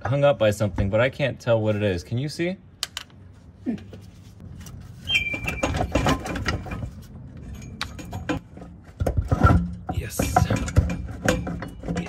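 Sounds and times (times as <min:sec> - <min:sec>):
metal knocks and scraping: 0:04.4 - 0:12.0
short squeak: 0:05.0 - 0:05.9.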